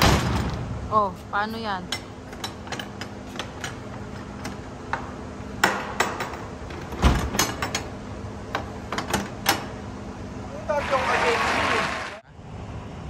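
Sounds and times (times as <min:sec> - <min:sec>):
hard objects knocking and clinking: 0:01.9 - 0:09.7.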